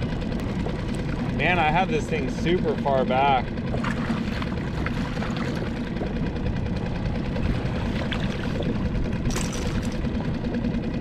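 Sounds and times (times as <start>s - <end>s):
outboard motor running: 0.0s - 11.0s
fish splashing out of water: 9.3s - 10.0s.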